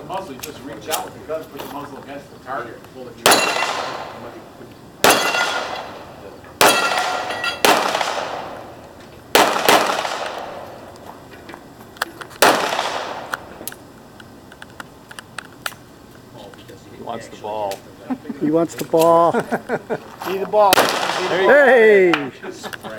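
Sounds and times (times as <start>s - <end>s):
steel targets ringing: 3.2s - 4.2s, 5.0s - 6.0s, 6.6s - 7.7s
handgun shots echoing: 3.2s - 4.3s, 5.0s - 10.9s, 12.4s - 13.8s, 20.7s - 21.6s.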